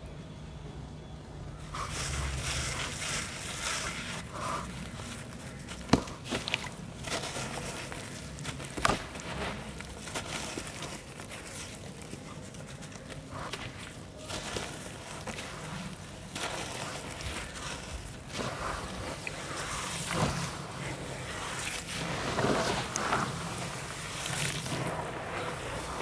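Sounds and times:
hands crumbling wet sand: 1.8 - 26.0.

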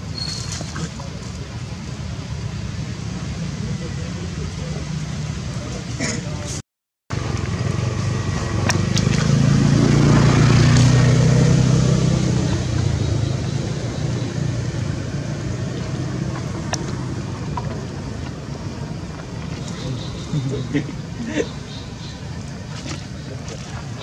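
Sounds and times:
vehicle engine passing: 7.1 - 24.0.

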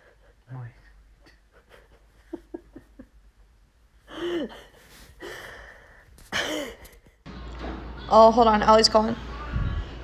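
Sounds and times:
person laughing: 1.4 - 3.2.

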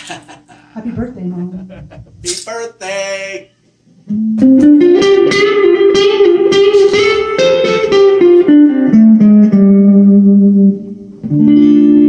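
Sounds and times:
electric guitar through an amp: 4.1 - 12.0.

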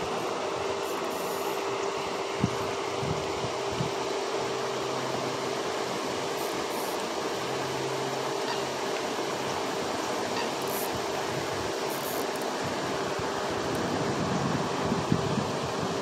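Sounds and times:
water spray rushing: 0.0 - 2.6, 4.4 - 15.9
fountain pump hum: 0.0 - 16.0.

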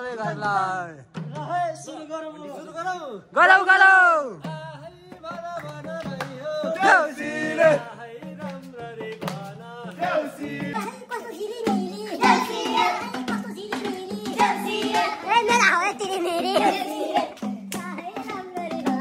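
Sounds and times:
festival song singing: 0.0 - 19.0
hand drum beating: 4.5 - 19.0.

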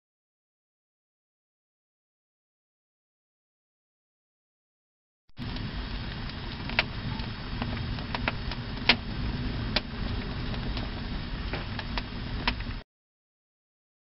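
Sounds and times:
fire crackling: 5.4 - 12.8
fire roaring: 5.4 - 12.8.

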